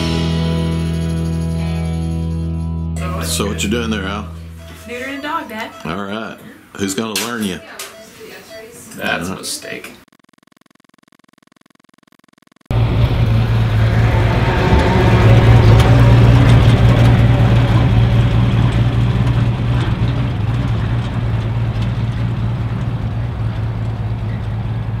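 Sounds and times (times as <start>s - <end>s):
truck engine driving off: 12.7s - 25.0s.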